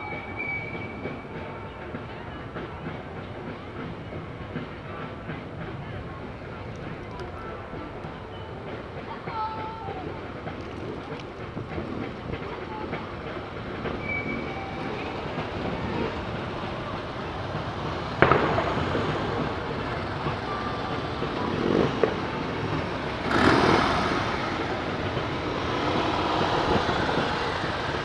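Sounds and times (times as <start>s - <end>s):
sudden sharp bang: 18.2s - 19.5s
motorcycle engines at low revs: 18.5s - 27.8s.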